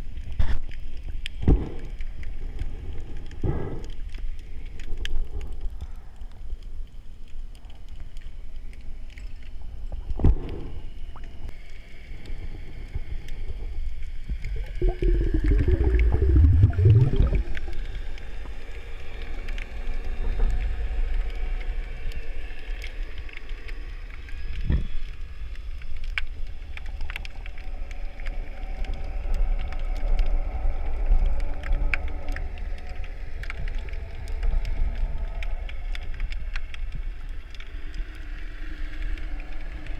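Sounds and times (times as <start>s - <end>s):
faint underwater clicks: 0.0s - 39.9s
underwater noise: 0.0s - 39.9s
wavering rising gurgle: 14.3s - 19.7s.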